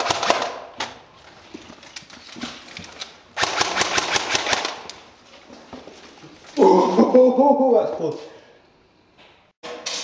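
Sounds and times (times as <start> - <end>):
airsoft gun firing: 0.0 - 0.7, 3.4 - 4.9.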